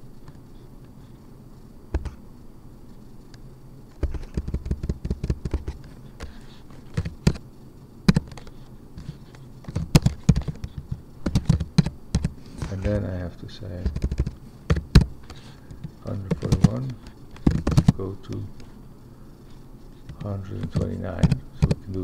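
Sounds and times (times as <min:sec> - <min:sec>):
typing on computer keyboard: 0:04.0 - 0:07.4, 0:09.6 - 0:12.4, 0:13.8 - 0:15.4, 0:16.1 - 0:18.4, 0:20.1 - 0:22.0.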